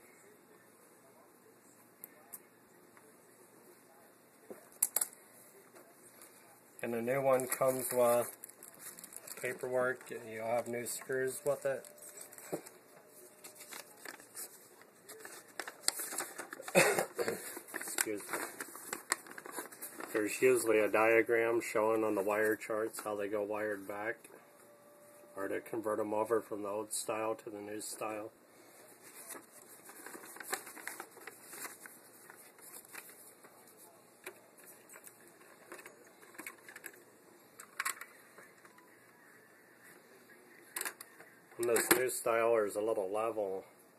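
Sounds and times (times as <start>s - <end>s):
paper and plastic rustling: 6.1s - 24.1s, 27.8s - 39.0s, 40.7s - 42.4s.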